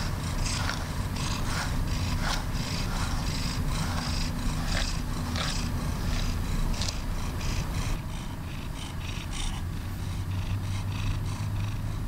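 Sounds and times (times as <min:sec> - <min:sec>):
brush scratching through fur: 0:00.0 - 0:08.0
cat purring: 0:00.0 - 0:12.0.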